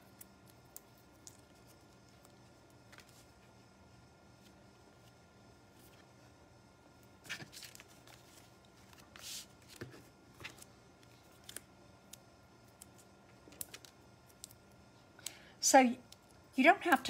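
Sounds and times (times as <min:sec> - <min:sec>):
paper rustling: 0:07.2 - 0:11.6.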